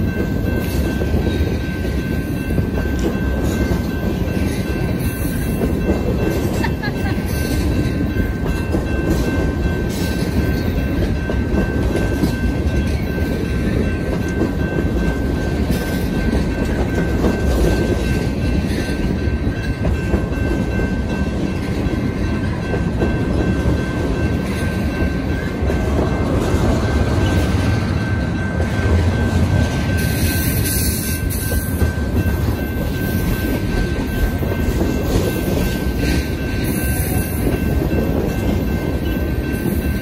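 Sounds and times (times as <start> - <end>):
train rumbling past: 0.0 - 40.0
wheels clickety-clack: 0.0 - 40.0.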